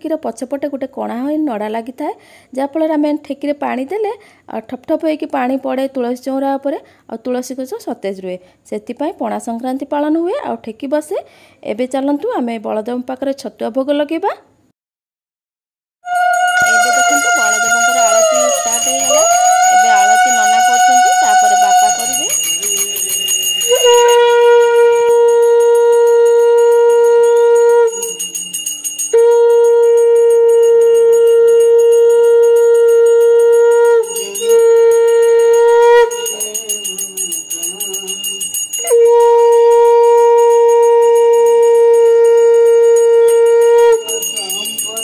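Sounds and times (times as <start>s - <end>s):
conch shell blasts: 16.0s - 28.4s, 29.0s - 37.4s, 38.4s - 45.0s
hand bell ringing rapidly: 16.1s - 39.1s, 40.1s - 45.0s.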